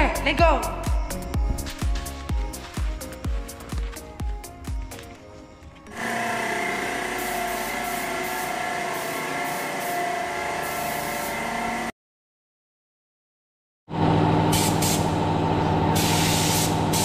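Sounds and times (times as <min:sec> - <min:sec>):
background music with a beat: 0:00.0 - 0:05.9
air compressor running: 0:05.8 - 0:11.9, 0:13.9 - 0:17.0
paint spray gun hissing: 0:05.9 - 0:11.7, 0:14.5 - 0:15.2, 0:16.0 - 0:17.0.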